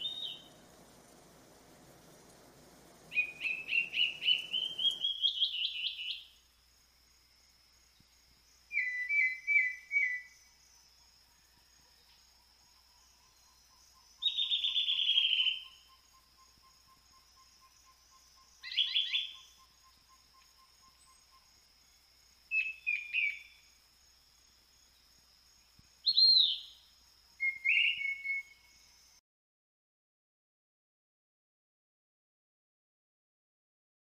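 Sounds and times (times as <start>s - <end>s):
forest birds calling: 0.0s - 6.4s, 8.7s - 10.6s, 13.0s - 23.8s, 26.0s - 29.0s.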